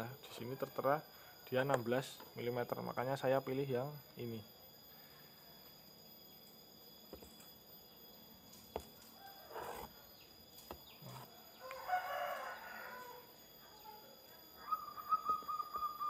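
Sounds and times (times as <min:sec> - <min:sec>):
bird calling: 0:14.6 - 0:16.0.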